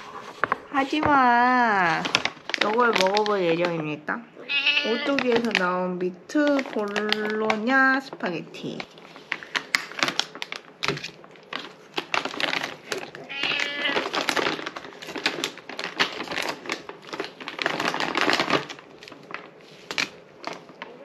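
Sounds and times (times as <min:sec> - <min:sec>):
plastic packaging crinkling: 0:00.0 - 0:21.0
cat meowing: 0:04.4 - 0:05.2, 0:13.2 - 0:14.1.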